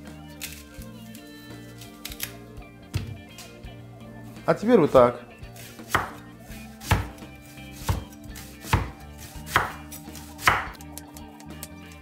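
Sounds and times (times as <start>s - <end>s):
knife cutting on wooden board: 5.6s - 10.8s.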